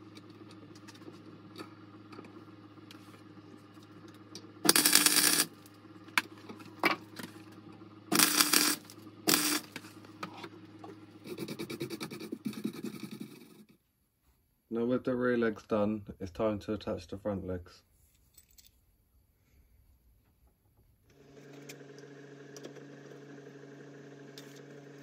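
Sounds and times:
low electrical hum: 0.0 - 25.0
wire brush scratching metal: 4.7 - 5.5, 8.1 - 9.8
welding arc crackling: 4.7 - 5.7, 8.1 - 9.9.

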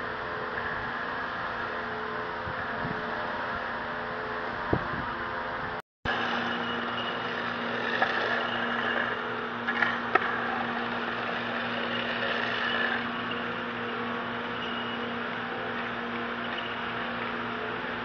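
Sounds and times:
mortar mixer and pump humming: 6.1 - 18.0.

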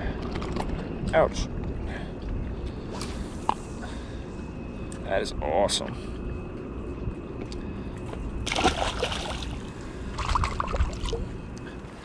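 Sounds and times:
low steady rumble: 0.0 - 12.0
water splashing at shoreline: 8.5 - 11.2.

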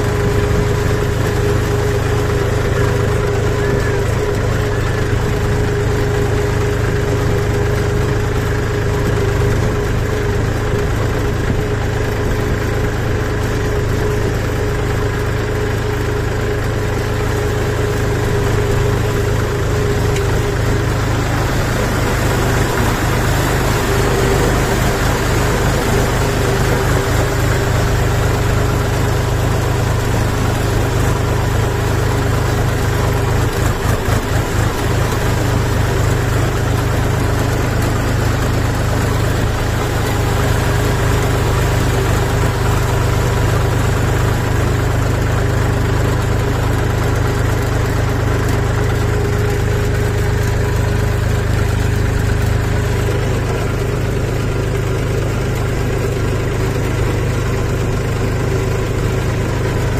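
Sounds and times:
diesel tractor engine running: 0.0 - 59.9.

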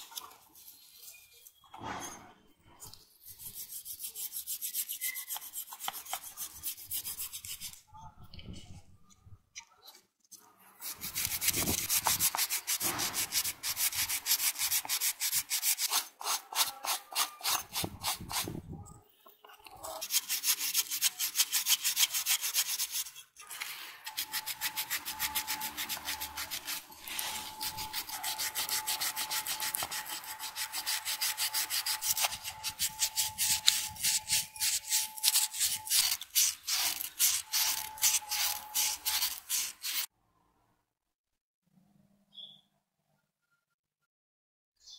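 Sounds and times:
scouring pad scrubbing rusty metal: 24.0 - 40.1.

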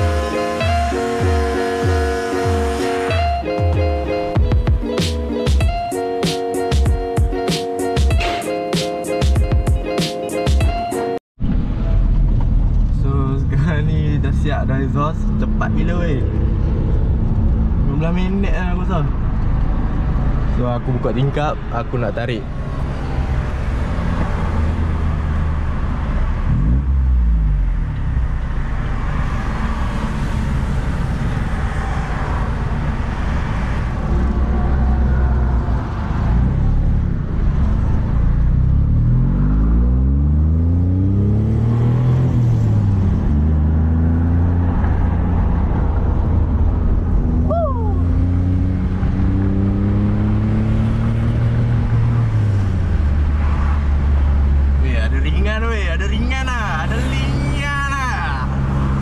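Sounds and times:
car engine revving through gears: 22.7 - 47.4, 48.0 - 54.9.

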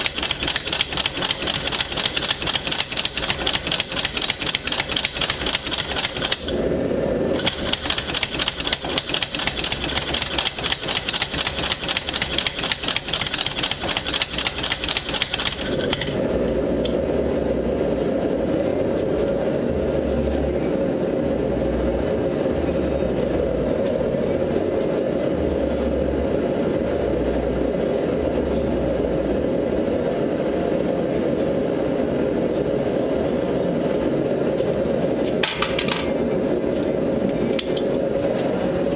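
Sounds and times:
power hammer striking steel: 0.0 - 6.6, 7.4 - 16.2.

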